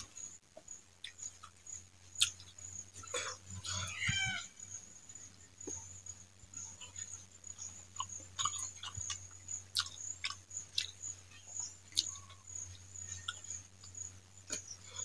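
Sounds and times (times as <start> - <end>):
wet chewing and lip smacks: 2.2 - 2.6, 8.0 - 11.0.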